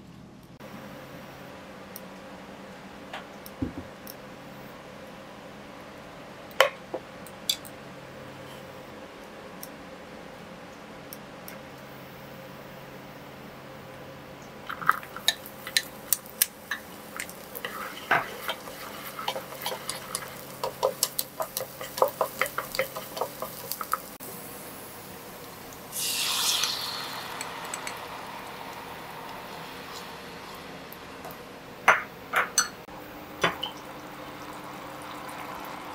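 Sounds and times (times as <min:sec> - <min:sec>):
sauce sizzling in hot pan: 0:14.7 - 0:31.8
chopsticks tapping against pan: 0:15.2 - 0:24.0.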